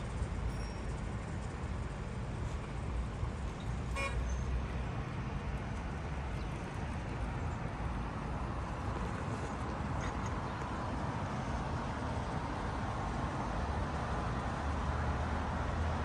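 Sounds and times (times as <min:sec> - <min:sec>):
road traffic rumble: 0:00.0 - 0:16.0
car horn toot: 0:03.9 - 0:04.2.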